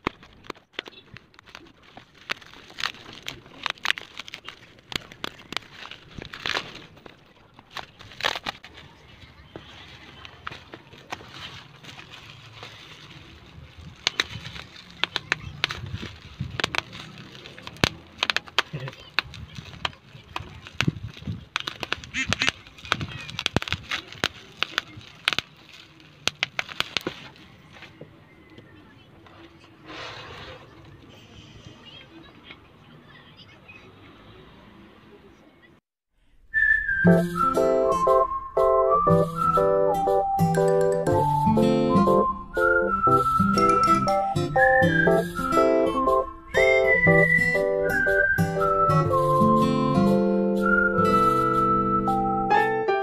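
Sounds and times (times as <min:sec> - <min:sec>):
bubble wrap crackling: 0:00.0 - 0:28.0, 0:36.5 - 0:52.1
plastic crinkling and squeaking: 0:00.0 - 0:32.0, 0:42.0 - 0:49.0.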